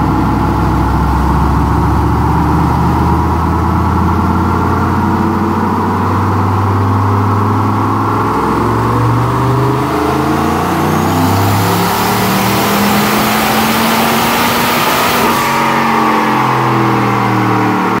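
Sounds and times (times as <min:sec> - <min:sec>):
engine at full throttle: 0:00.0 - 0:18.0.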